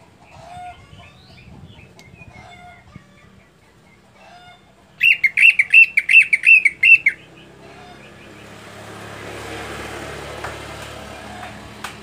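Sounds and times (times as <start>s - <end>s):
bird singing sharp notes: 5.0s - 7.5s.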